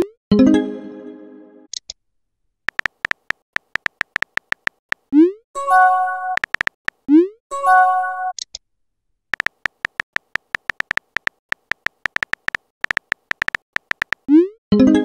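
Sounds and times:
keyboard tap clicks: 2.7s - 5.0s, 6.4s - 7.0s, 9.4s - 14.3s.

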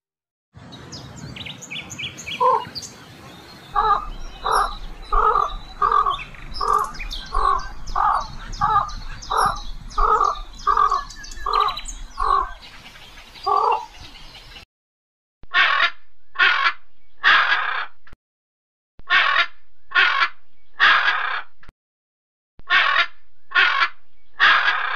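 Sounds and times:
small birds chirping: 0.7s - 14.6s
bird harsh calls: 1.3s - 14.6s.

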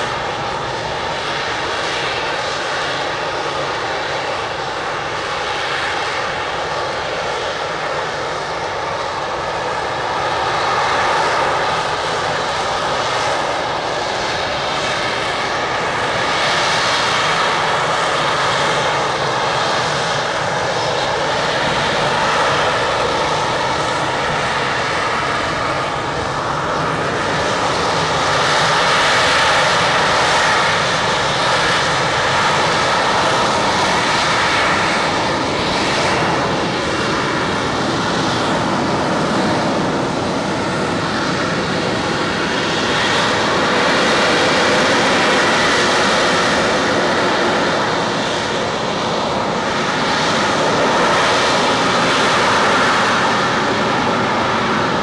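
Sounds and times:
jet engine roar in hover: 0.0s - 55.0s.

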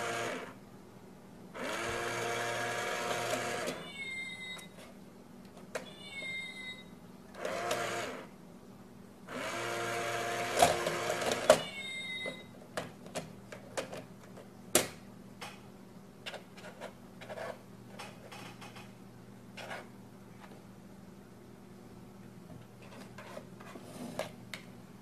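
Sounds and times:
meow-like squeal: 3.6s - 4.7s, 5.8s - 6.9s, 11.5s - 12.5s.

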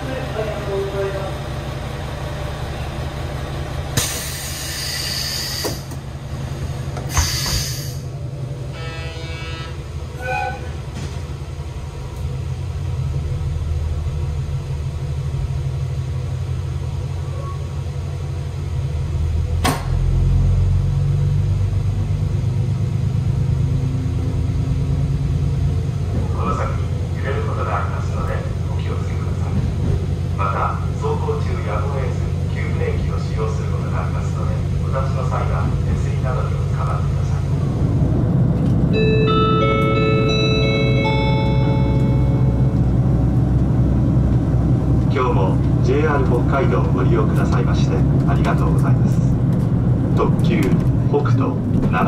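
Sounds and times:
diesel railcar engine idling: 0.0s - 52.0s
loud air hisses: 4.0s - 5.9s, 7.0s - 8.1s.

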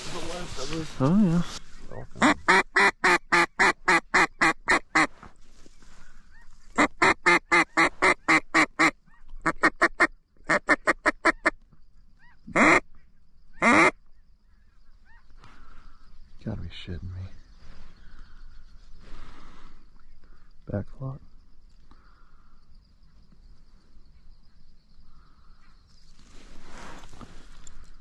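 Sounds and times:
duck call quacking: 2.2s - 5.1s, 6.8s - 11.5s, 12.5s - 12.8s, 13.6s - 14.0s.

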